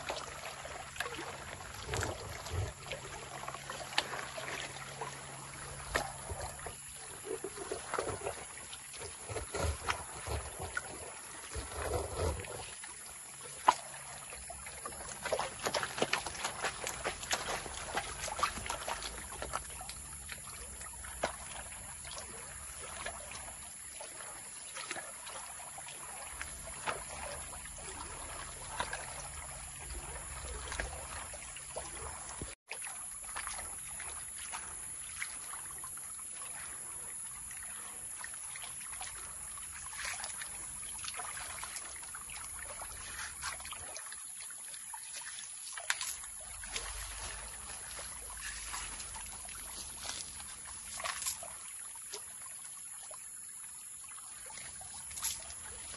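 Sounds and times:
water sloshing and splashing: 0.0 - 55.9
gravel clicking against pan: 8.9 - 12.6.

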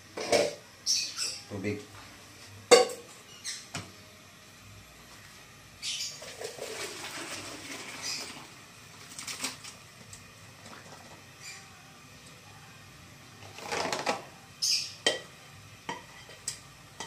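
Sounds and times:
water pouring into sink: 6.2 - 9.7.

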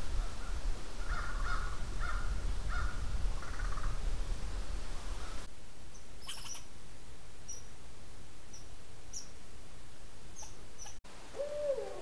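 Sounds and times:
squirrel squeaks and chirps: 5.9 - 6.7, 10.4 - 11.0
owl hooting: 10.4 - 12.0.

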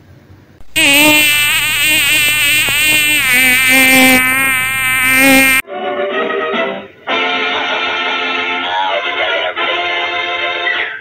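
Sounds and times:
buzzy cartoon sound effect: 0.6 - 5.6.

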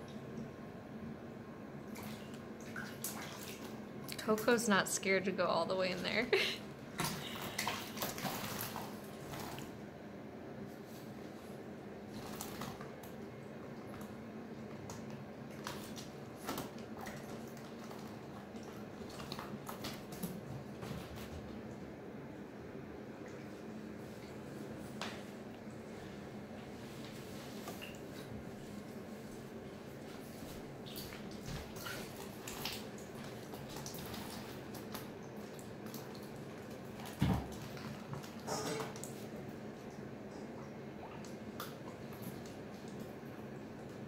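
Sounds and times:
water splashing and sloshing: 1.8 - 5.0, 5.7 - 9.9, 10.7 - 22.1, 22.9 - 44.0
water splashing and dripping: 1.9 - 4.4, 30.8 - 40.0.

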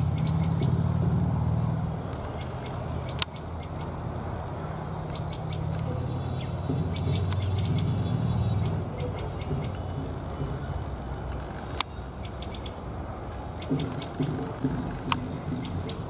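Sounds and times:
bird calling sharp repeated notes: 5.1 - 16.0.

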